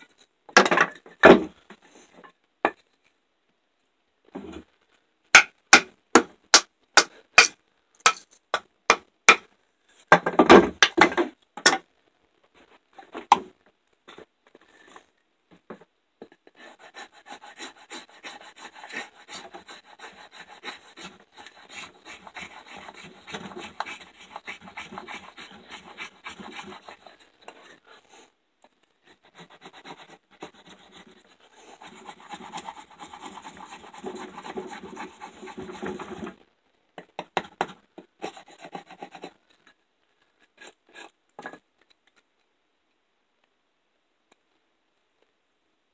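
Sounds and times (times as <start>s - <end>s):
sharp wooden knocks: 5.4s - 9.4s
knife scraping wood: 16.6s - 27.8s, 29.0s - 36.4s, 40.4s - 41.6s.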